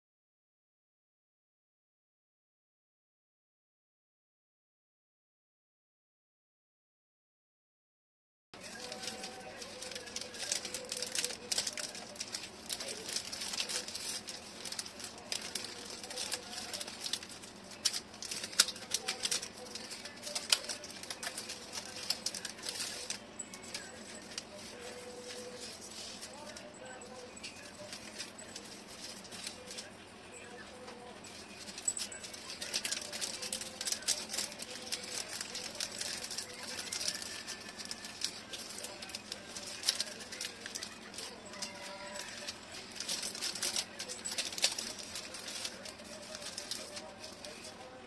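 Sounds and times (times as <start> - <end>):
wrapping paper crinkling: 8.6 - 48.0.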